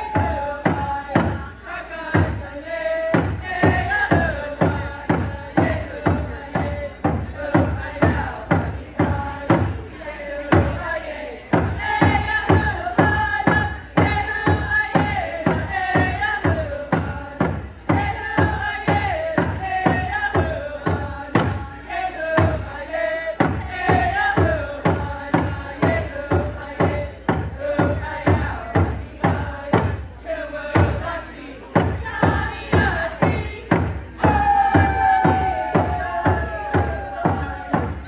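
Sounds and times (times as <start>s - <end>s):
group singing in unison: 0.0s - 38.0s
hand drum beat: 31.8s - 38.0s.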